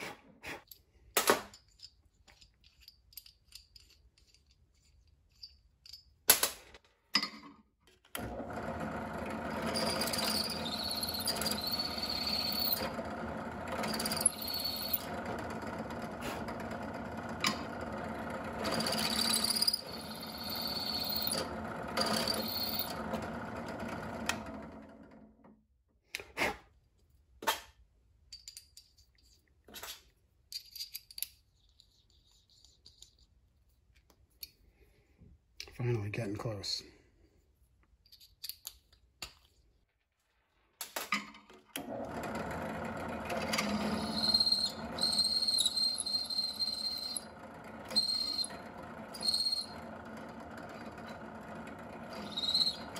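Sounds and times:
drill press running: 0:08.2 - 0:25.5, 0:41.8 - 0:52.9
drill bit squealing in metal: 0:09.5 - 0:13.0, 0:13.7 - 0:15.3, 0:18.6 - 0:23.0, 0:43.4 - 0:50.0, 0:52.1 - 0:52.9.

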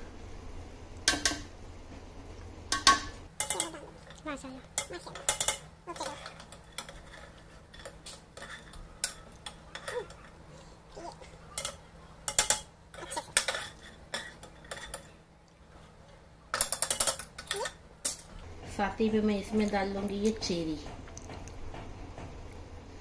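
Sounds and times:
metal spoon scraping frying pan: 0:02.8 - 0:04.2, 0:04.8 - 0:10.4, 0:11.5 - 0:15.2.

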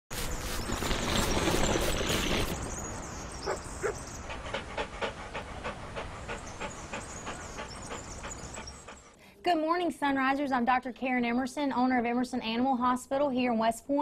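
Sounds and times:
dog panting: 0:00.4 - 0:09.2.

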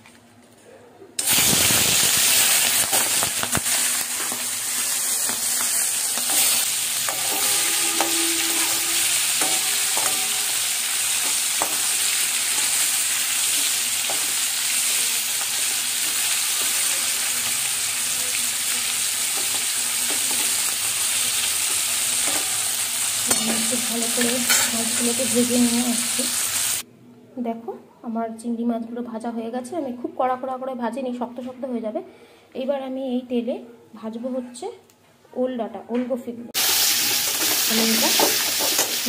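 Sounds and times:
prawns sizzling in hot oil: 0:01.2 - 0:26.8, 0:36.6 - 0:39.0.

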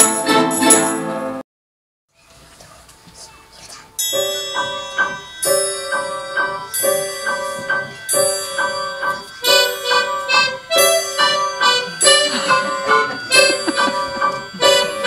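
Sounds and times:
orchestra playing: 0:00.0 - 0:01.4, 0:09.1 - 0:15.0.

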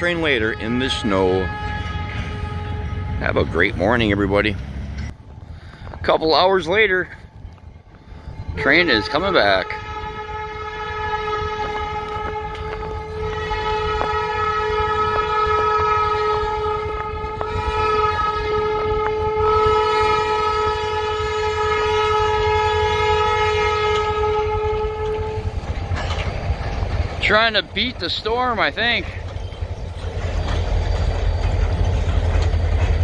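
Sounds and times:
locomotive air horn blasts: 0:00.0 - 0:04.4, 0:08.6 - 0:25.8
low rumble of train: 0:00.0 - 0:33.0.

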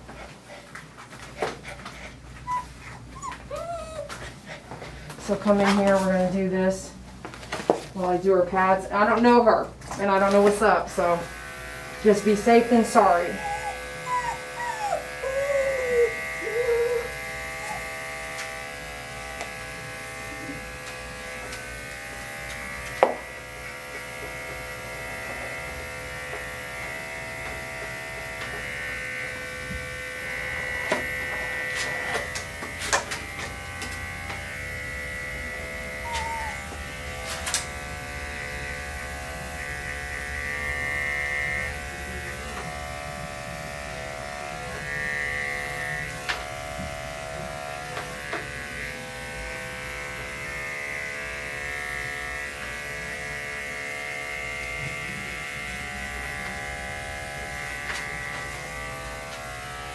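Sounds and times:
electric clippers running: 0:10.0 - 0:59.9.

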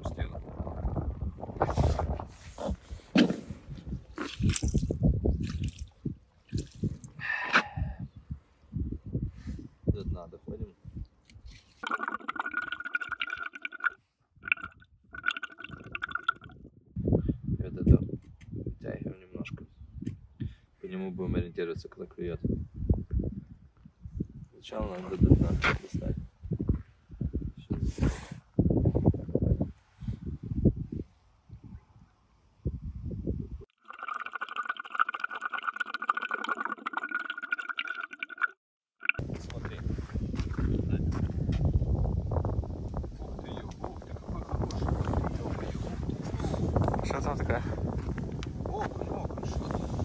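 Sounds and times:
underwater gurgling and crackling: 0:11.8 - 0:16.5, 0:33.8 - 0:39.2.

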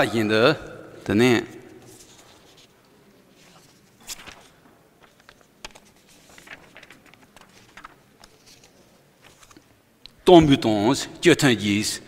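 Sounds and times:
paper sheets rustling: 0:01.6 - 0:09.7.

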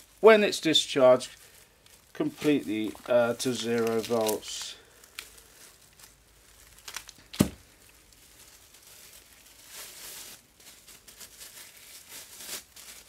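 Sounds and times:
plastic gloves and bag crinkling: 0:00.0 - 0:13.0.

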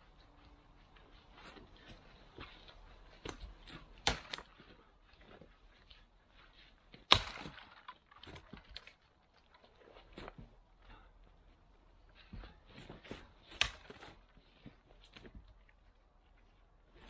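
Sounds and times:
dead branches snapping: 0:03.2 - 0:04.7, 0:06.9 - 0:09.7, 0:13.4 - 0:14.5.

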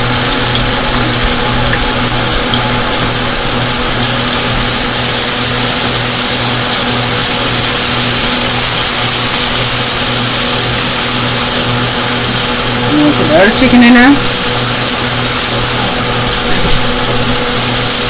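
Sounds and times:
low hum: 0:00.0 - 0:04.8
chicken frying in hot oil: 0:00.0 - 0:18.0.

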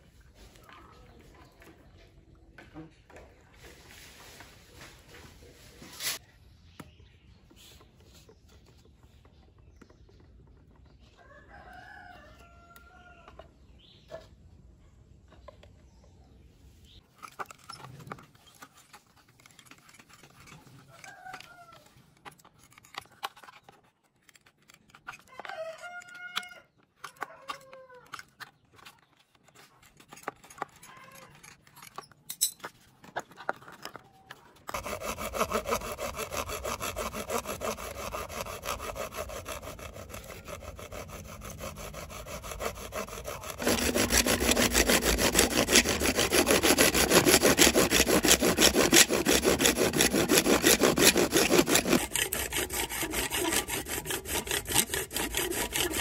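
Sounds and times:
saw blade rasping through pipe: 0:34.7 - 0:56.0.

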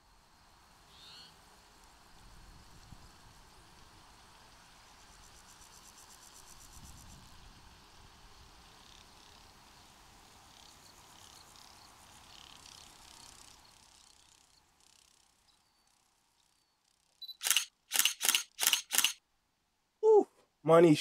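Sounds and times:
faint insect chirring: 0:00.0 - 0:19.2
camera shutter clicks: 0:17.2 - 0:19.2.

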